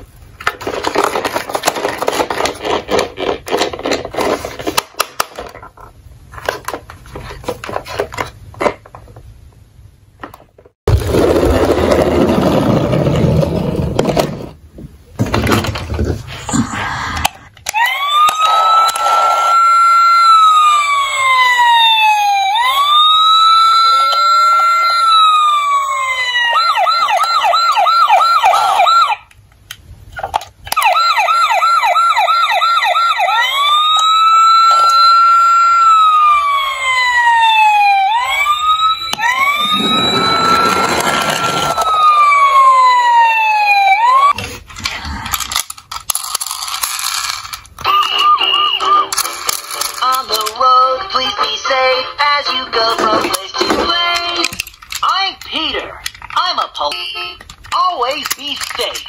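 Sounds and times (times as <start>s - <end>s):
toy siren wailing: 17.7s - 29.2s, 30.8s - 44.4s, 47.9s - 49.2s.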